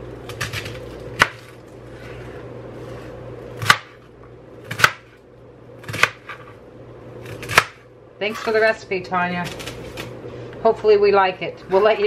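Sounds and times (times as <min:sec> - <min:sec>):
knife chopping on cutting board: 0:03.6 - 0:04.0, 0:04.7 - 0:05.2, 0:05.8 - 0:06.5, 0:07.2 - 0:07.8.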